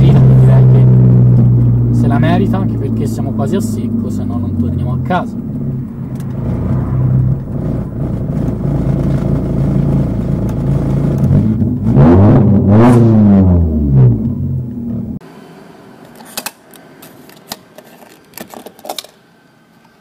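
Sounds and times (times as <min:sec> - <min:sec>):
car engine revving: 0:00.0 - 0:15.2.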